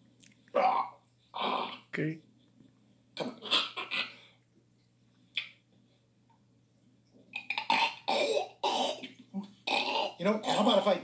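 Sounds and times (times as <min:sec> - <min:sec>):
man making retching noises: 0:00.5 - 0:02.1, 0:03.2 - 0:04.2, 0:07.3 - 0:11.0.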